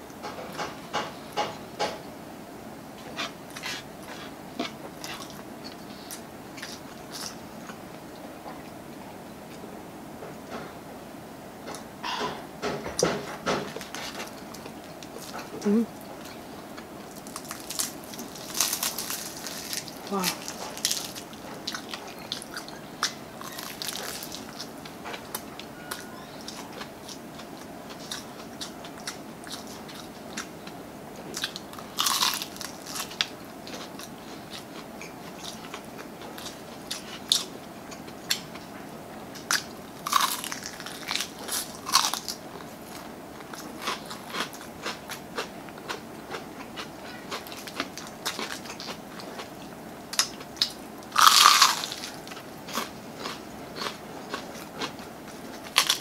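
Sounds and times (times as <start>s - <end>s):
crunching fried chicken: 16.1s - 30.5s, 31.3s - 38.6s, 39.3s - 56.0s
food tearing: 17.2s - 22.5s.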